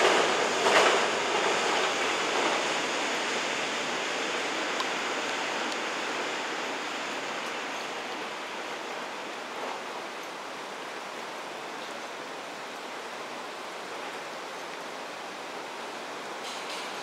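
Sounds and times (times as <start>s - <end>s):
electric train rushing on tracks: 0.0s - 17.0s.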